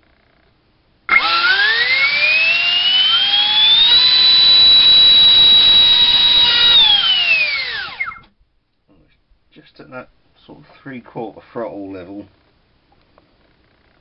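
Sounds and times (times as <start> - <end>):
electric ducted fan whining: 1.1 - 8.4.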